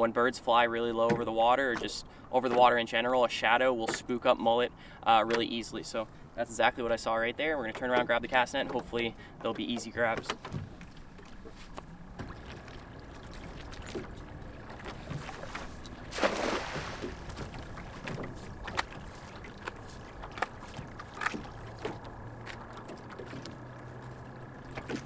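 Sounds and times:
knocks and rustles of line: 9.7s - 16.3s, 17.0s - 25.0s
net splashing on water: 11.0s - 25.0s.

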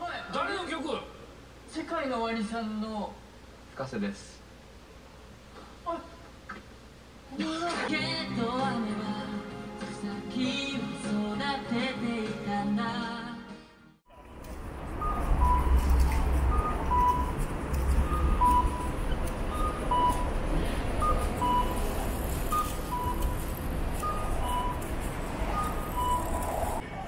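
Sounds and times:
two-tone electronic chime: 15.0s - 20.4s.

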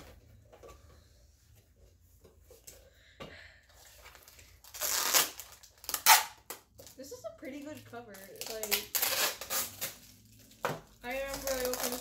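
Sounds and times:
packing tape ripping off: 4.1s - 7.0s, 8.1s - 12.0s.

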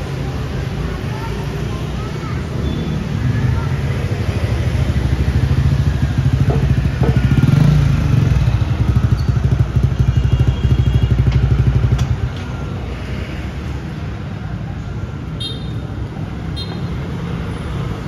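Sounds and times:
street traffic: 0.0s - 18.0s
motorbike engine puttering: 5.2s - 12.4s.

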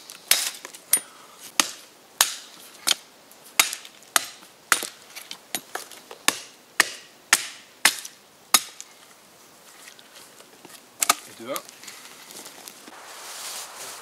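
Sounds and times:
blade chopping wood: 1.6s - 3.0s, 3.6s - 5.0s, 5.6s - 8.8s.

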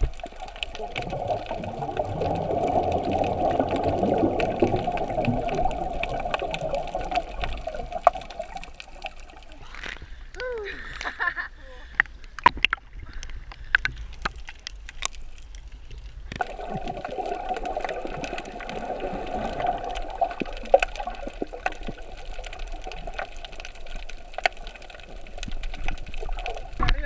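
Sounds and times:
muffled underwater rushing: 0.0s - 10.2s, 16.3s - 27.0s
water splashing and lapping: 0.0s - 11.2s, 11.9s - 27.0s.

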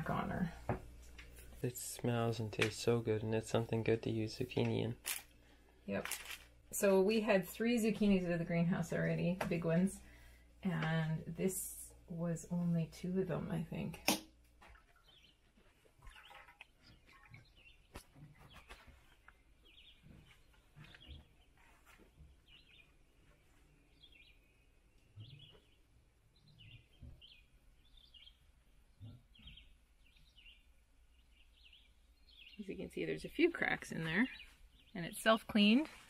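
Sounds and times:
faint bird chirps: 14.7s - 35.7s.

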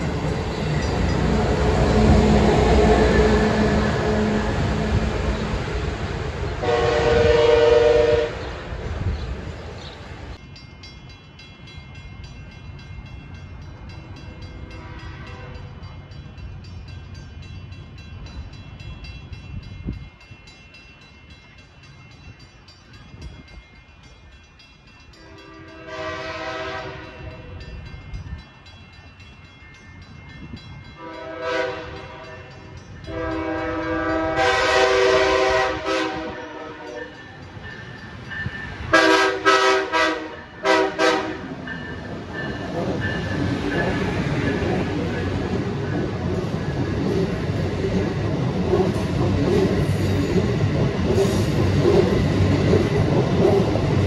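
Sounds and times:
train rumbling: 0.0s - 54.0s
train air horn blasts: 1.5s - 5.5s, 6.6s - 8.5s, 14.7s - 15.7s, 25.2s - 27.5s, 31.0s - 37.2s, 38.9s - 41.5s.

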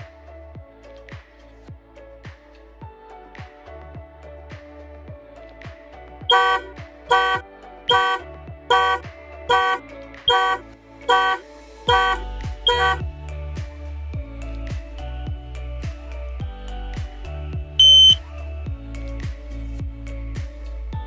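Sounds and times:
background music: 0.0s - 21.0s
car horn short blasts: 6.3s - 13.0s, 17.8s - 18.2s.

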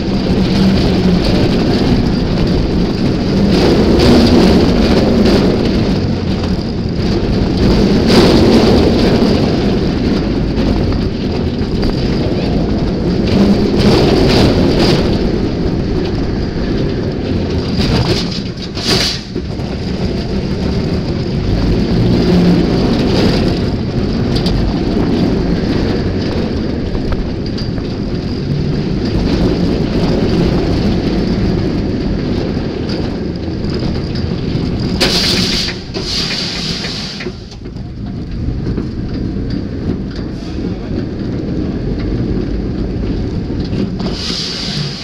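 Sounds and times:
roller coaster rumbling on track: 0.0s - 45.0s
wind on microphone: 0.0s - 45.0s
loud hiss: 35.0s - 37.5s, 44.0s - 45.0s.

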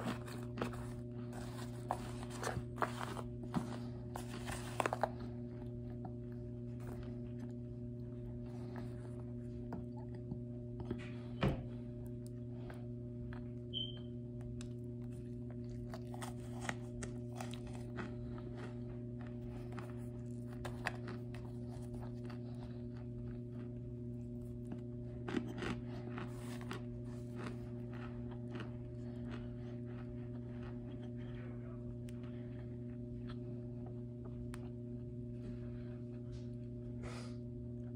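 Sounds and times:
cornstarch crunching and crumbling: 0.0s - 9.0s, 14.6s - 33.4s
low hum: 0.0s - 37.9s.

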